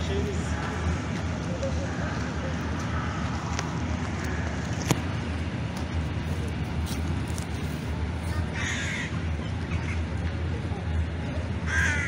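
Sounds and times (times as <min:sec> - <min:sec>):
steady low rumble: 0:00.0 - 0:12.0
crow cawing: 0:01.8 - 0:03.5, 0:08.5 - 0:09.2, 0:11.7 - 0:12.0.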